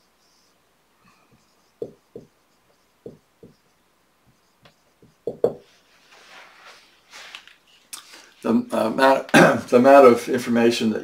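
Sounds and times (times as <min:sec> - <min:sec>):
marker knocking on whiteboard: 0:01.3 - 0:03.6, 0:04.2 - 0:05.7.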